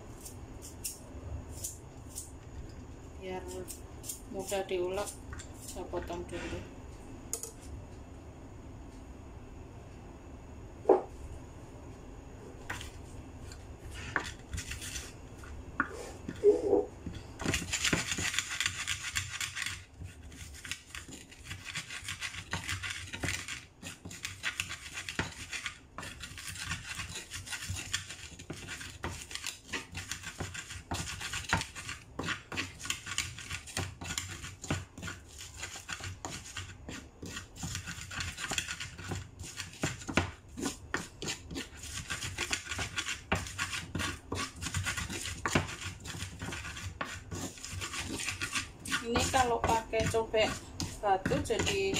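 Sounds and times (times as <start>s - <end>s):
pestle grinding and scraping: 0.0s - 6.6s, 12.6s - 51.9s
wooden pestle knocking on clay mortar: 36.2s - 51.9s.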